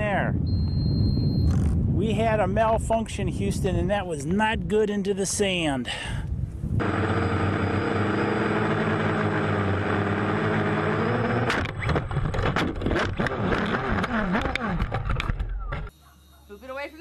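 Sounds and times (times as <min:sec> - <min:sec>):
drone motors buzzing: 0:06.8 - 0:16.7.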